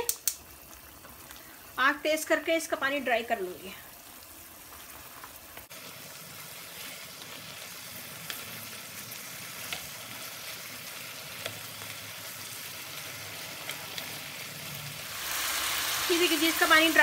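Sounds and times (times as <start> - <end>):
spoon clicking against a pan: 0.0 - 0.4
chicken sizzling in a pan: 0.0 - 17.0.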